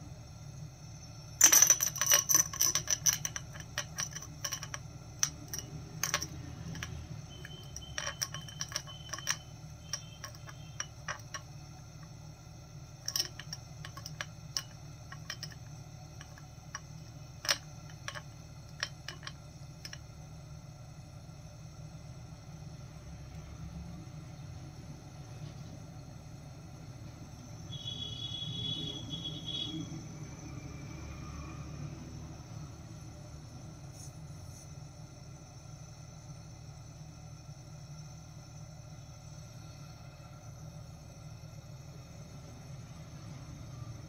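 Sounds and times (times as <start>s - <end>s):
steady low hum: 0.0s - 44.0s
glass clicking and clinking: 1.4s - 12.1s, 13.0s - 20.0s.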